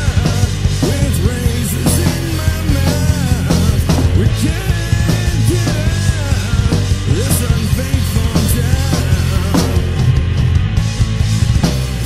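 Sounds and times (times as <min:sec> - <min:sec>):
grunge rock band: 0:00.0 - 0:12.0.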